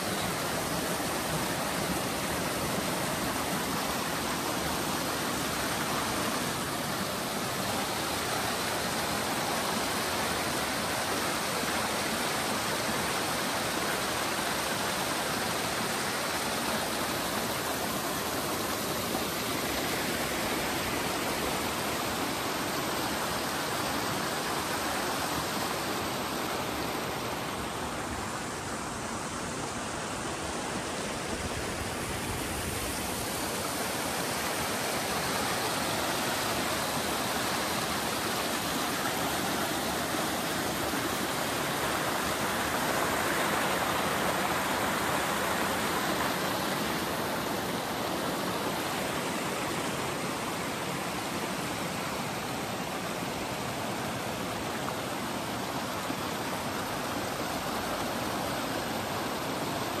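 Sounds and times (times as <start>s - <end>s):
mountain stream rushing: 0.0s - 60.0s.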